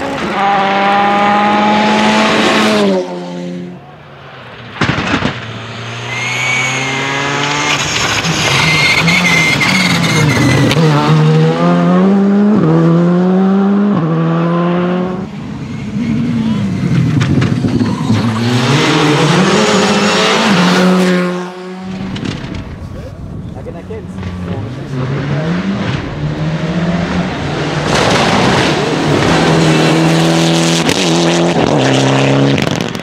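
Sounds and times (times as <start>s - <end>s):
rally car engine upshifting: 0.0s - 3.7s, 4.6s - 33.0s
sharp cracks: 4.4s - 8.5s
high whistle: 6.1s - 7.0s, 7.7s - 10.7s.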